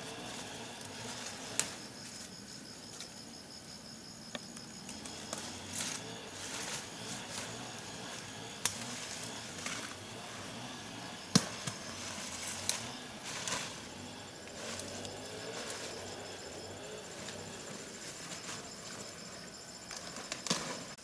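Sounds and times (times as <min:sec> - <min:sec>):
rustling: 0:00.0 - 0:03.2, 0:04.8 - 0:10.5, 0:11.3 - 0:21.0
faint insect trill: 0:00.0 - 0:21.0
sharp snaps: 0:08.6 - 0:08.8.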